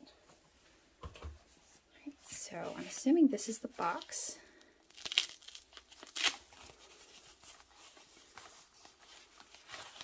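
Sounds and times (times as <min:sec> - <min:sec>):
foam wrap rustling and crinkling: 0:02.5 - 0:10.0
foam wrap ripping: 0:04.9 - 0:06.8, 0:07.4 - 0:10.0.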